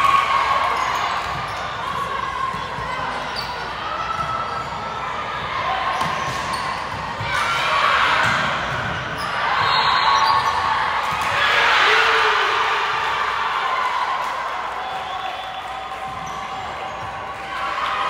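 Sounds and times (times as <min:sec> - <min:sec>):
crowd shouting and cheering: 0:00.0 - 0:18.0
volleyball hits echoing: 0:05.9 - 0:09.2.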